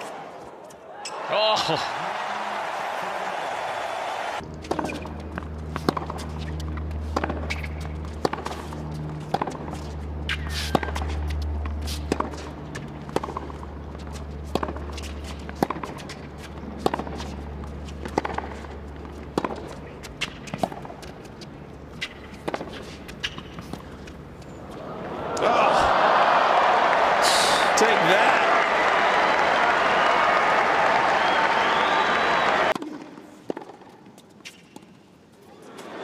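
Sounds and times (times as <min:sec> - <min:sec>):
players' footsteps: 0:02.0 - 0:32.8
tennis balls struck by rackets: 0:04.6 - 0:25.5, 0:32.7 - 0:34.9.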